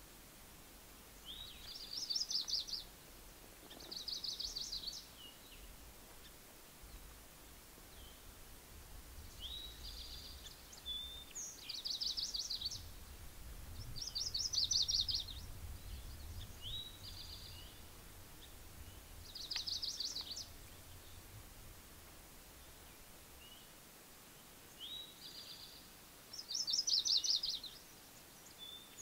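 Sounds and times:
faint low rumble: 12.3 - 23.5
songbird trilling: 13.9 - 21.2, 26.4 - 27.8.

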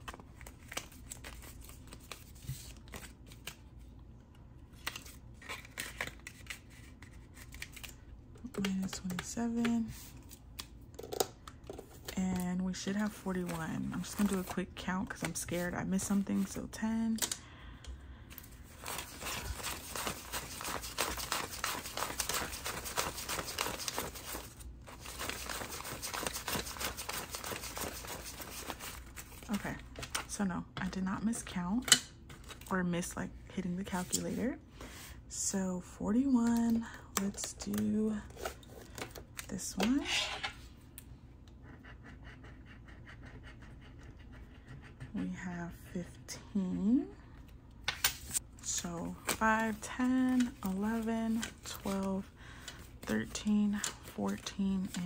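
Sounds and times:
banknotes rustling while counted: 0.0 - 3.7, 4.8 - 10.7, 12.0 - 17.1, 18.3 - 30.4, 48.1 - 55.0
paper money rustling: 18.7 - 29.5.

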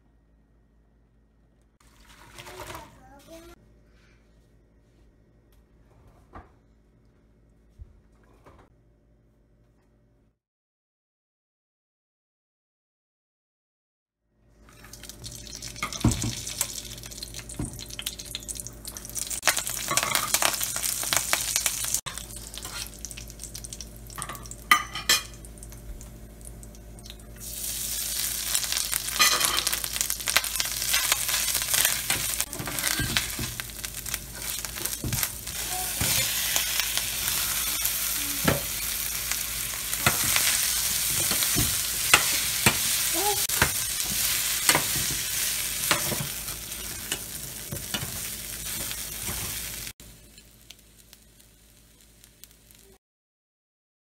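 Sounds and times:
hot oil sizzling in a pan: 14.7 - 53.0.

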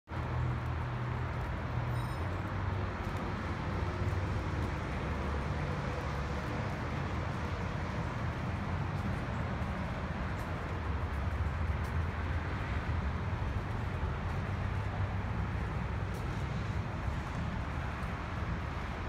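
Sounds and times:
faint high beep: 1.9 - 2.4.

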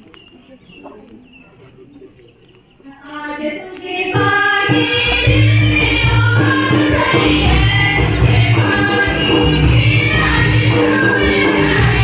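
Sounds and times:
faint crowd murmur: 0.0 - 12.0
choir singing a hymn: 3.4 - 12.0.

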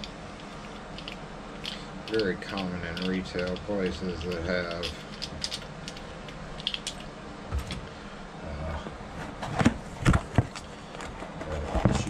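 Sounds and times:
handling noise: 0.0 - 7.9.

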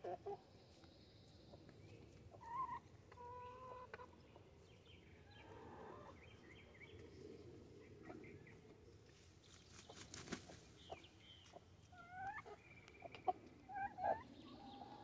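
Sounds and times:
chickens clucking: 0.0 - 0.5, 1.6 - 4.6, 5.2 - 6.3, 9.9 - 15.0.

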